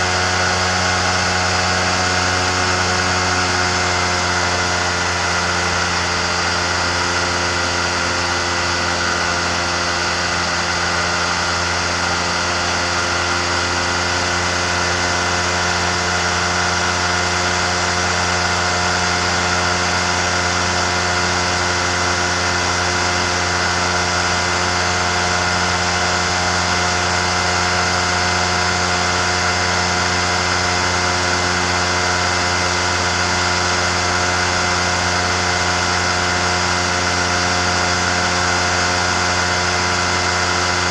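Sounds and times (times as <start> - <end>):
microlight engine and propeller: 0.0 - 40.9.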